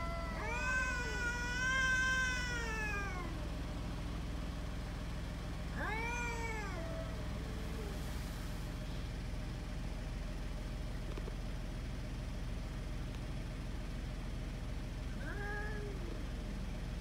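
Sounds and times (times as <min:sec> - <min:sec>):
cat growling: 0:00.0 - 0:03.5, 0:05.7 - 0:08.2, 0:15.1 - 0:16.6
low background hum: 0:00.0 - 0:17.0.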